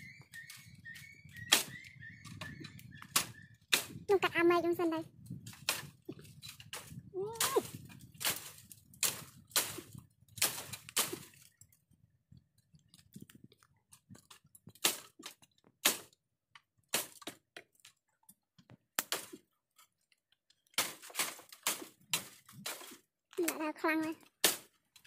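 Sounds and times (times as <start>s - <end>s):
bamboo twigs snapping: 1.5s - 1.8s, 5.4s - 11.6s, 20.7s - 23.6s, 24.3s - 25.0s.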